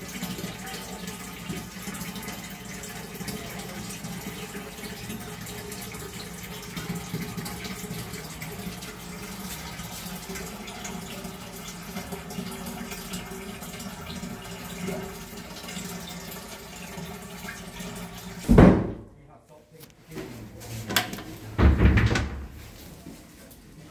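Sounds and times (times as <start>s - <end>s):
toilet cistern refilling: 0.0s - 19.0s.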